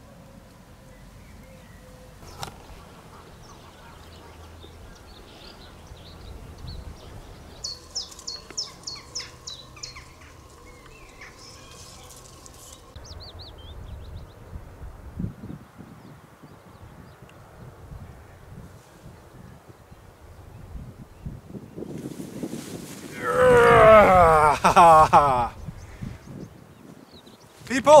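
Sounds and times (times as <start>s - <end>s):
birds chirping and singing: 0.9s - 14.6s, 23.2s - 28.0s
wind rumble: 2.2s - 27.6s.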